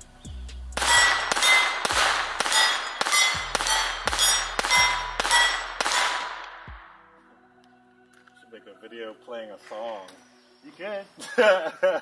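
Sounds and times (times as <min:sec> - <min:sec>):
steel plate target ringing: 0:00.8 - 0:06.8
pistol shots: 0:00.8 - 0:07.0.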